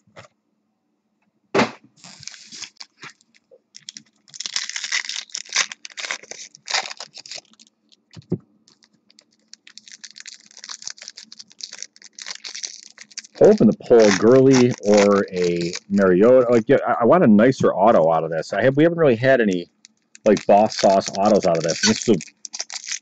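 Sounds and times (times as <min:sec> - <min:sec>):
dull thump: 0:01.6 - 0:01.9
sharp knock: 0:01.6 - 0:01.9
foil packs crinkling and clicking: 0:02.0 - 0:16.1, 0:19.4 - 0:23.0.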